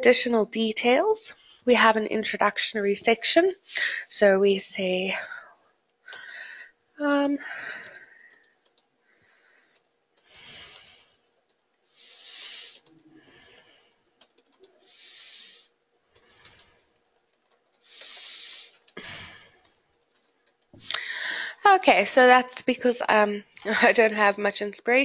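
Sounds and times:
keyboard typing: 7.6 - 11.9, 12.5 - 14.9, 16.1 - 20.8
soft breathy hisses: 11.9 - 13.9, 14.8 - 15.7, 17.8 - 19.4.

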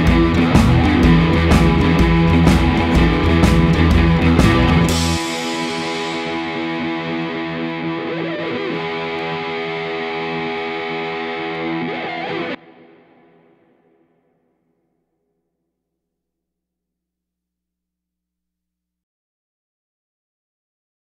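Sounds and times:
distorted electric guitar chord: 0.0 - 13.7.

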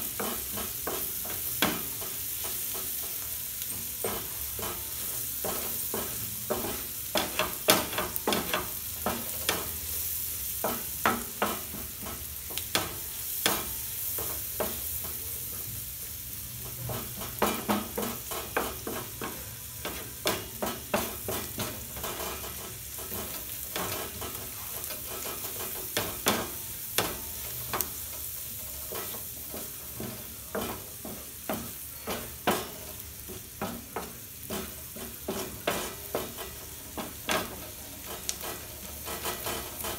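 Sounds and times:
onions and tomatoes sizzling: 0.0 - 39.9
wooden spatula scraping a pan: 16.6 - 39.9.

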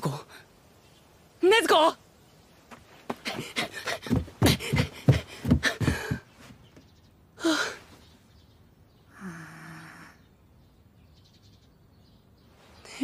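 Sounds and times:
boy panting: 3.2 - 6.3.

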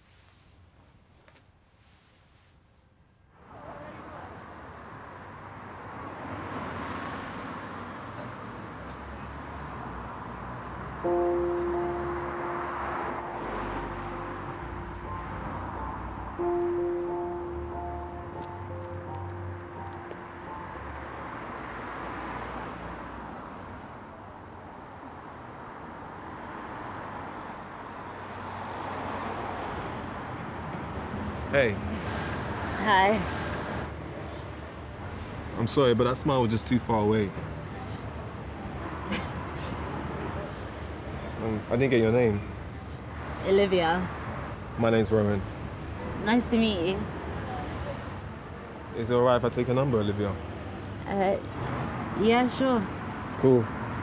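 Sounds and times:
street traffic passing: 0.1 - 54.0
cars driving past: 3.4 - 54.0
loud steady held note: 11.0 - 20.6.

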